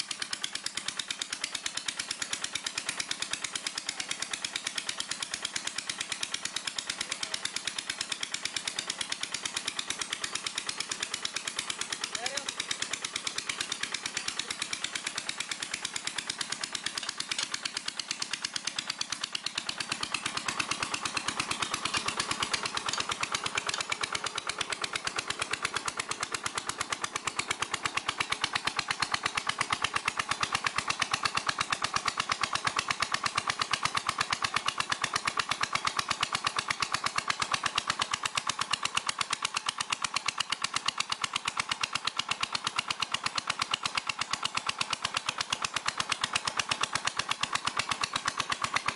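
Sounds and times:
diesel engine running: 0.0 - 48.9
water pump: 0.0 - 48.9.

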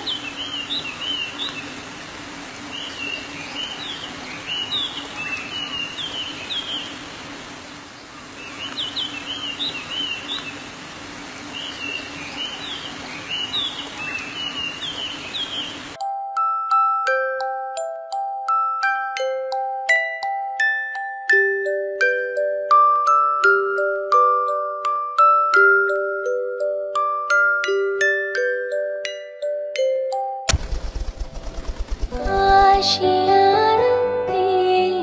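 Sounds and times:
birds chirping: 0.0 - 16.0.

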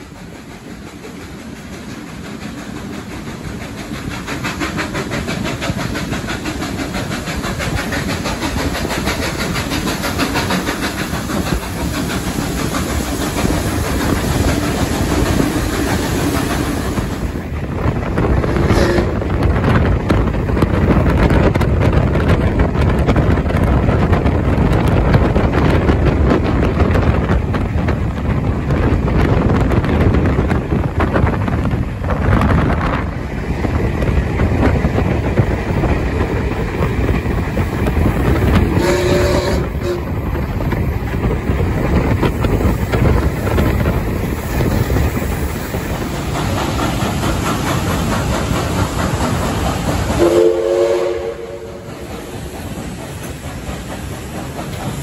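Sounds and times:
train wheels running on track: 0.0 - 55.0
steam whistle toots: 18.6 - 19.2, 38.8 - 40.1, 50.2 - 51.9.

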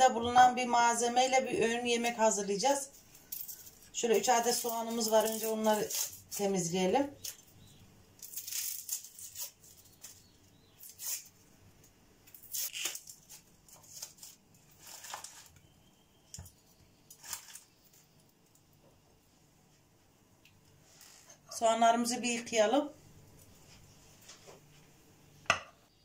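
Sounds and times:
onion skins crackling and rustling: 0.0 - 18.9, 20.6 - 22.2.

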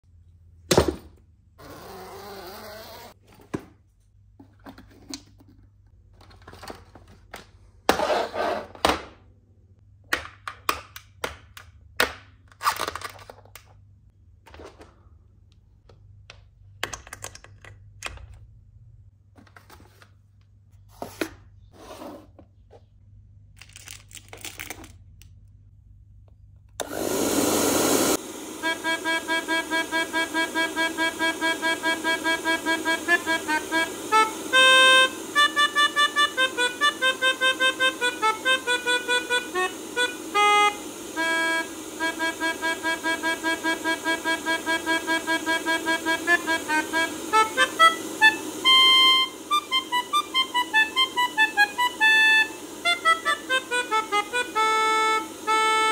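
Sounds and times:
hair dryer blowing: 26.8 - 55.9
melodica reed notes: 28.6 - 55.9.

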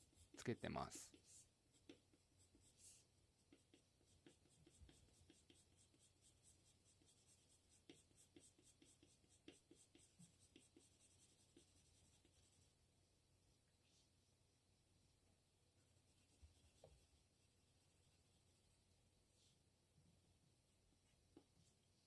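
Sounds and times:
pencil scratching on paper: 0.0 - 12.7.

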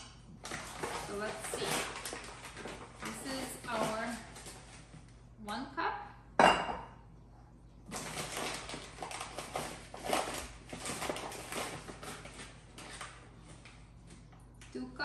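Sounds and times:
paper bag crinkling: 0.4 - 5.0, 7.9 - 13.9.

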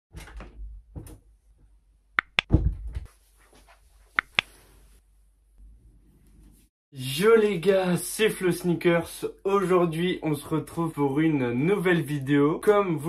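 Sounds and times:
mouse clicks: 2.2 - 2.5, 4.2 - 4.5
low thud and rustle: 2.5 - 3.1.

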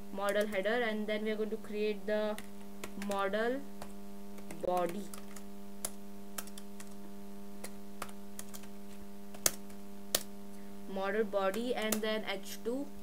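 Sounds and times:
low electrical hum: 0.0 - 13.0
keyboard key presses: 2.3 - 7.0, 7.6 - 8.7, 9.3 - 10.3, 11.5 - 12.2.

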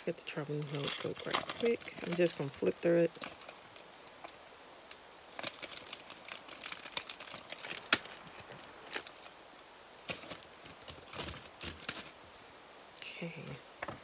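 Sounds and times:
plastic packaging crinkling: 0.0 - 9.4, 10.0 - 12.2
craft supplies rustling: 0.4 - 4.4, 5.3 - 9.4, 10.0 - 12.2.

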